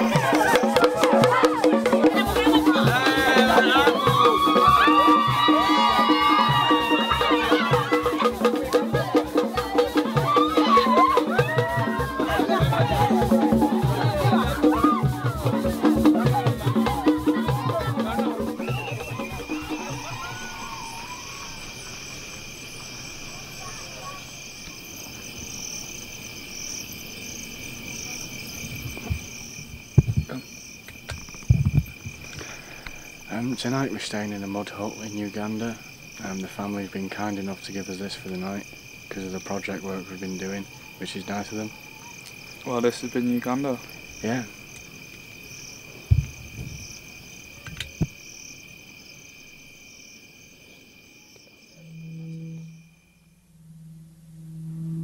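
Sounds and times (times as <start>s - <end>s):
crickets and insects trilling: 0.0s - 55.0s
low thumps: 28.8s - 30.4s, 31.1s - 32.3s, 46.1s - 47.0s.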